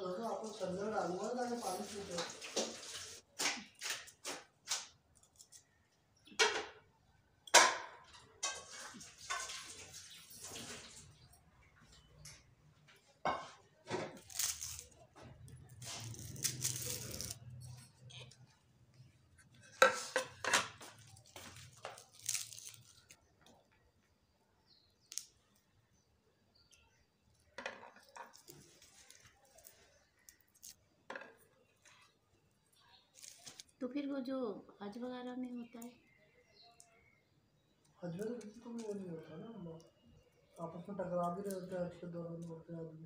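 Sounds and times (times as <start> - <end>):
onion skins peeled and torn: 3.4 - 6.0, 14.1 - 23.7, 24.9 - 25.9, 26.5 - 30.8, 32.8 - 33.8
knife scraping ceramic plates: 8.4 - 9.8, 19.4 - 20.9.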